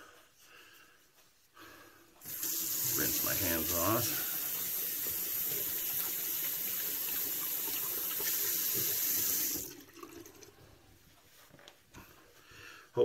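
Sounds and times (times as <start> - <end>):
tap water running: 2.2 - 10.6.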